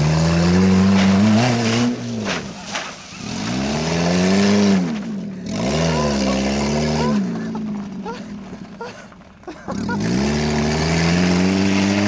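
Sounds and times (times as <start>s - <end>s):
car engine revving: 0.0s - 8.7s, 9.7s - 12.0s
tyres scrabbling on gravel: 0.7s - 5.2s, 7.2s - 10.8s.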